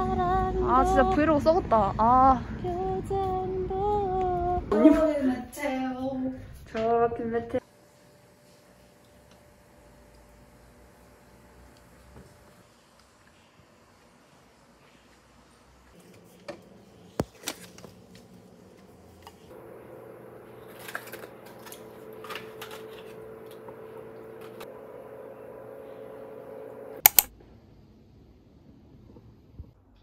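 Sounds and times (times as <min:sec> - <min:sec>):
kitchen appliance humming: 0:07.6 - 0:13.1, 0:16.0 - 0:27.3
things handled in kitchen: 0:20.5 - 0:23.7
sharp loud clicks: 0:27.0 - 0:27.3.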